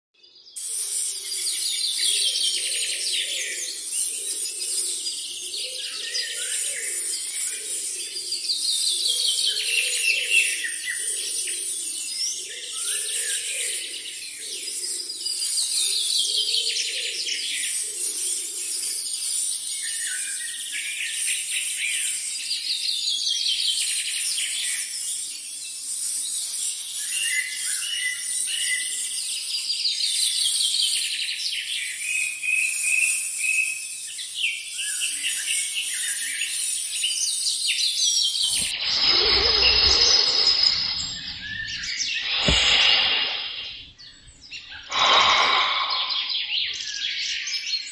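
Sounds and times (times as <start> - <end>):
steady high hiss: 38.7 - 44.3
low pulsing sound: 44.9 - 46.7.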